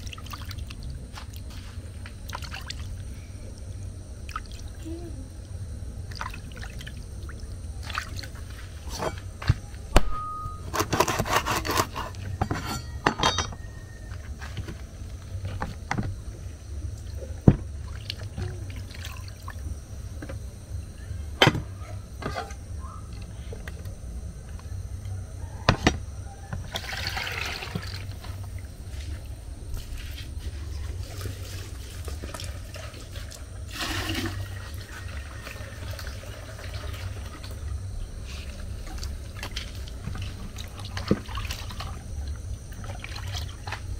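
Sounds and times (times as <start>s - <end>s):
water sloshing in a bowl: 0.0s - 4.8s, 6.0s - 9.6s, 17.0s - 19.7s, 26.6s - 29.2s, 29.8s - 43.9s.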